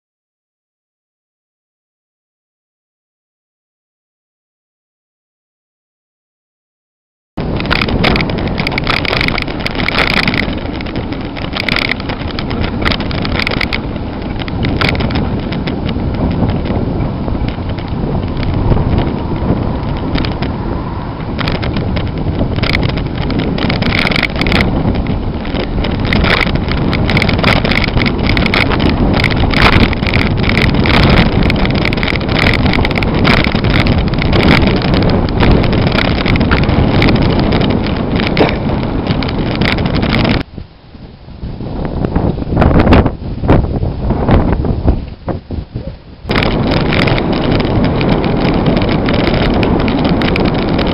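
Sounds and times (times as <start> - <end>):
clicks and rattles: 7.4 - 40.5, 45.8 - 50.9
tyre and road rumble: 7.4 - 50.9
wind buffeting microphone: 7.4 - 50.9.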